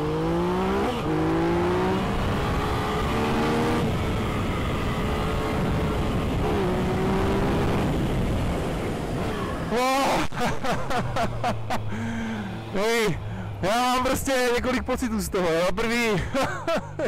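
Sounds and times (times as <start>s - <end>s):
wind noise rushing: 2.3s - 9.7s.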